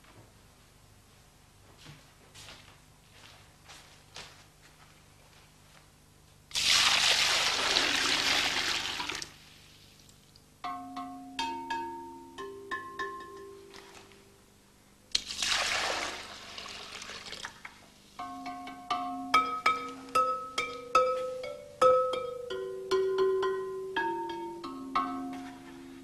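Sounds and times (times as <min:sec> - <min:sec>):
water pouring into flowerpots: 0:06.5 - 0:09.4, 0:15.1 - 0:17.8
clay pots ringing when struck: 0:10.6 - 0:13.7, 0:18.2 - 0:25.9.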